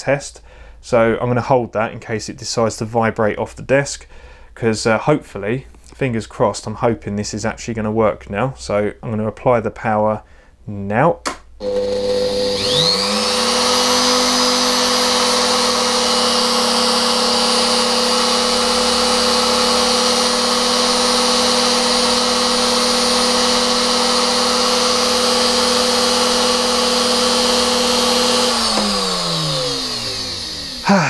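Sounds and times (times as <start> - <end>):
trimmer motor running: 11.6 - 31.0.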